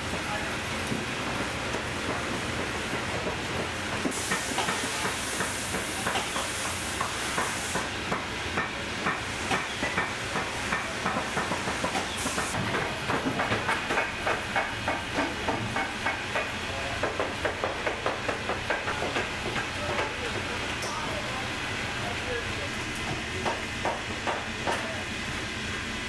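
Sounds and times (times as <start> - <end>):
hiss: 3.5 - 19.7.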